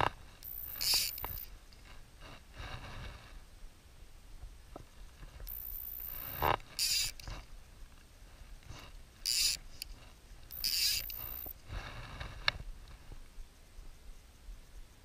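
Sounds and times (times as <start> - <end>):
fly reel click drag buzzing: 0.4 - 1.5, 5.5 - 7.2, 9.2 - 9.9, 10.5 - 11.6.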